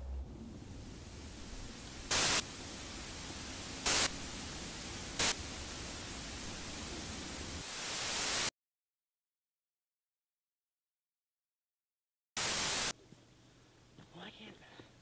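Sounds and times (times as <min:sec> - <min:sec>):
loud static bursts: 0:00.0 - 0:08.5, 0:12.4 - 0:12.9
steady static hiss: 0:00.0 - 0:08.5, 0:12.4 - 0:15.0.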